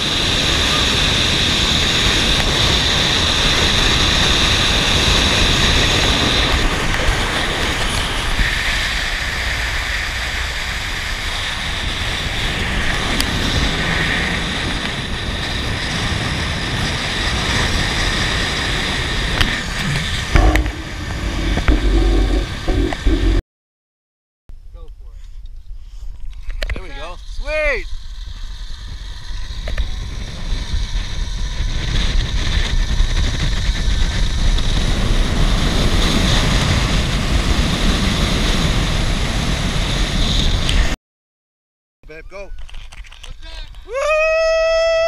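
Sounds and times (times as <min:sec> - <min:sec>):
wind rushing over microphone: 0:00.0 - 0:23.4, 0:26.4 - 0:41.0
zip-line trolley whirring: 0:00.0 - 0:23.4, 0:27.0 - 0:41.0, 0:42.6 - 0:45.0
heavy thumps: 0:19.8 - 0:23.4.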